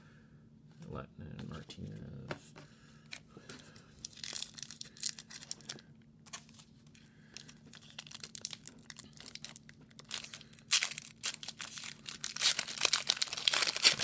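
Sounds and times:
foil wrapper crinkling and tearing: 4.0 - 6.7, 7.4 - 14.0.

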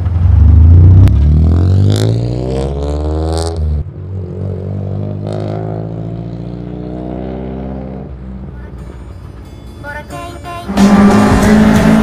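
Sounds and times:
race car engine revving: 10.7 - 12.0.

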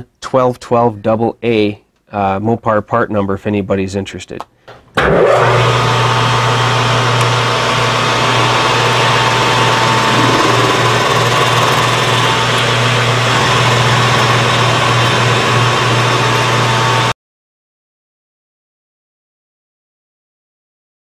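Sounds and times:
metal lathe humming: 7.7 - 16.6
thin steady whine: 9.6 - 12.3.

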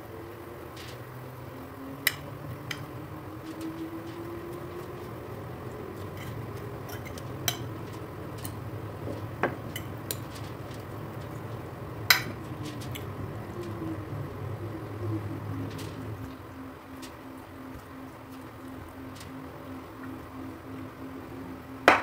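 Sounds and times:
gas stove rumble: 0.0 - 21.0
metal fork clinking on plate: 6.1 - 7.8.

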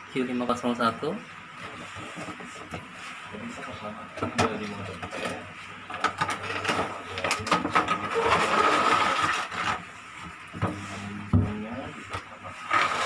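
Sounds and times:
plastic tray scraping and crinkling: 6.2 - 9.9, 12.6 - 13.0.

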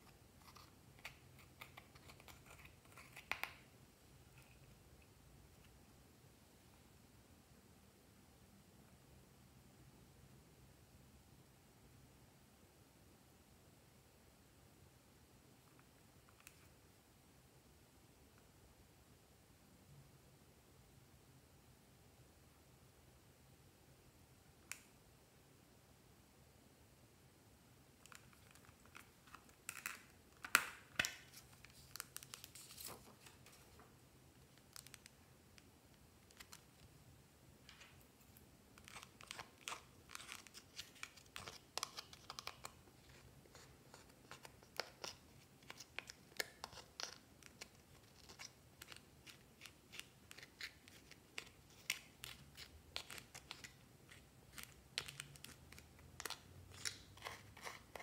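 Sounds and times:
scissors scratching pressed eyeshadow: 56.2 - 58.0.

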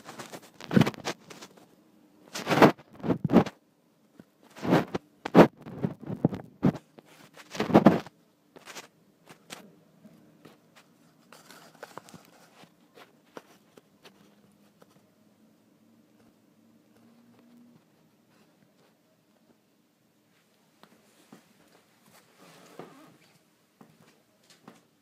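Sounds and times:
rustling and knocking: 2.3 - 9.6.

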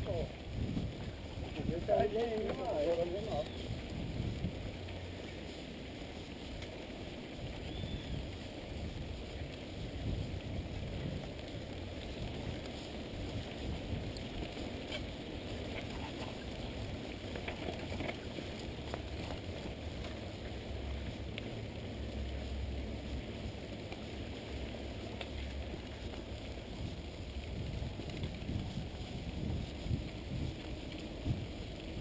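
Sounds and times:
wind buffeting microphone: 0.0 - 23.7, 24.9 - 32.0
bike tyres rumbling on dirt: 0.0 - 32.0
bike rattling clicks: 11.3 - 20.3.

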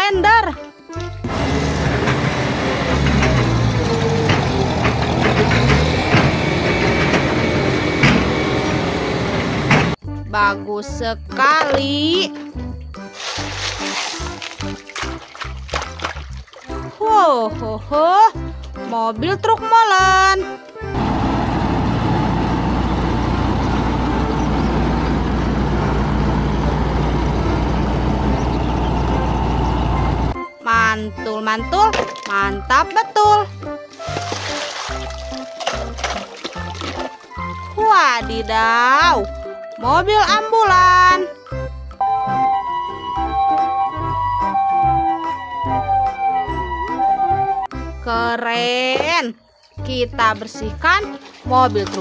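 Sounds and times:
heavy machinery engine running: 1.2 - 10.0, 20.9 - 30.4.

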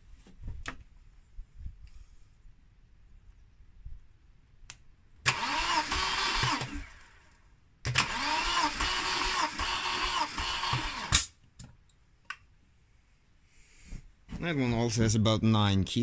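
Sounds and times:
engine cranking by starter motor: 5.2 - 11.4.

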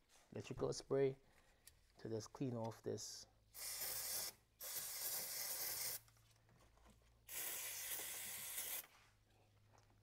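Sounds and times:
aerosol can hissing: 3.6 - 6.0, 7.3 - 8.9.

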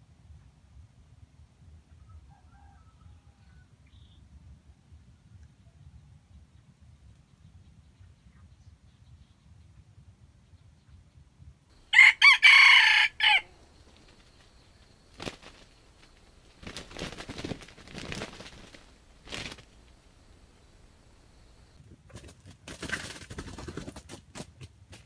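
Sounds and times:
rooster crowing: 2.1 - 3.7, 11.8 - 21.8
rustling in dry leaves: 11.8 - 21.8.

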